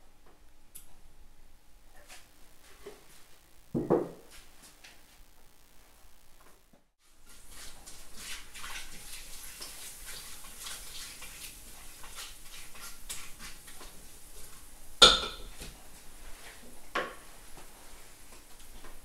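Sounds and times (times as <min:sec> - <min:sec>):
loud knock on pot: 0:03.8 - 0:04.2, 0:15.0 - 0:15.5.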